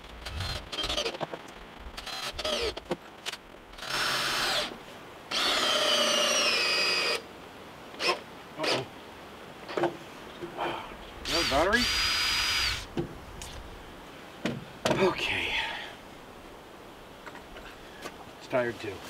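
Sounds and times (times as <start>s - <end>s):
cordless drill driving screws: 0.2s - 1.2s, 2.0s - 2.8s, 3.8s - 4.7s, 5.3s - 7.2s, 8.0s - 8.9s, 11.2s - 12.9s.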